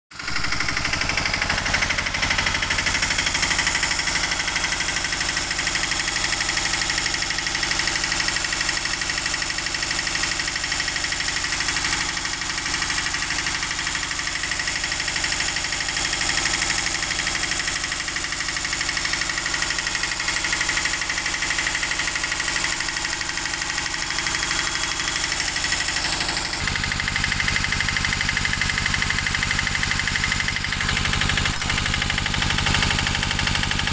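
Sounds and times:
diesel engine idling: 0.2s - 8.7s, 16.2s - 33.9s.

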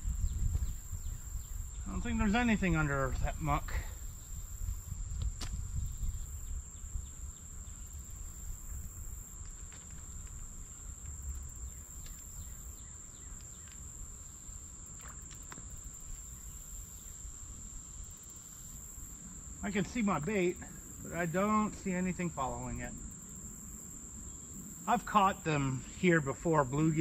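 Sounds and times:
wind rumble on microphone: 0.0s - 14.2s.

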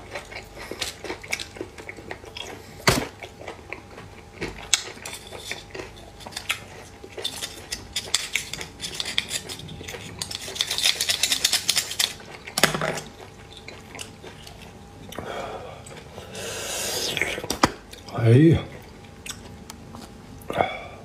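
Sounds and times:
utensil scraping oyster shell: 5.0s - 12.3s.

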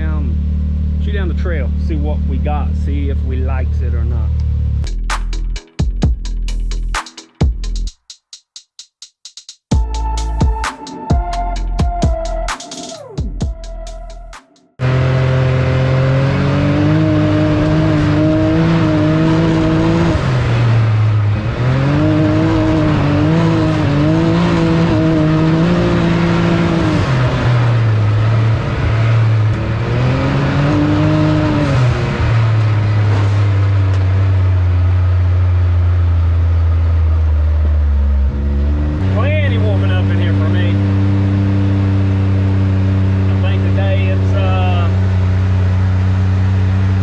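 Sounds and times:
vehicle engine revving: 9.8s - 47.0s.

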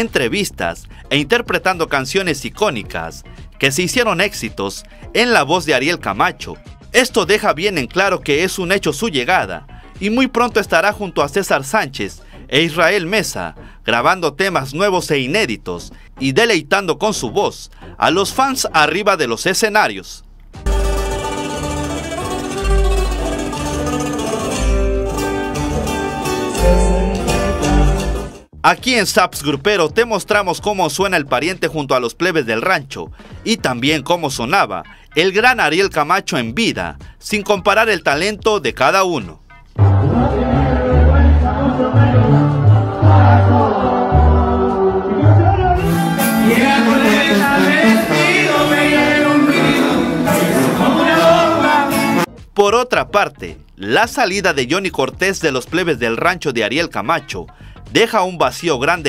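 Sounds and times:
tuba bass line: 20.2s - 59.0s
acoustic guitars playing: 20.6s - 28.6s, 39.4s - 52.4s
man singing: 39.8s - 52.3s.

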